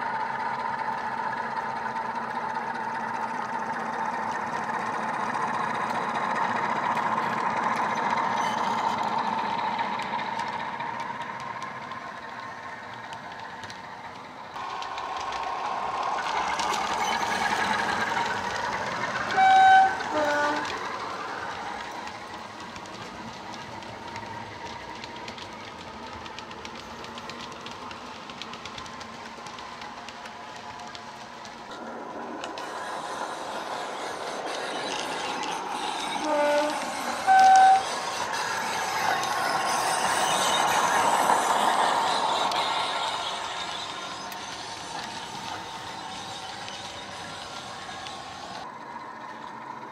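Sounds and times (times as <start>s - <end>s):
model locomotive diesel engine sound: 0.0s - 49.9s
wheels clicking over track: 0.0s - 49.9s
two-tone horn: 19.3s - 20.7s, 36.2s - 37.8s.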